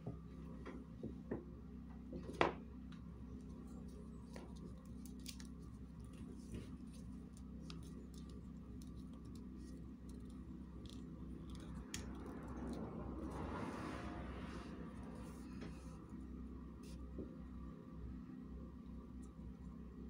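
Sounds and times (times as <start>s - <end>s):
low hum: 2.7s - 20.0s.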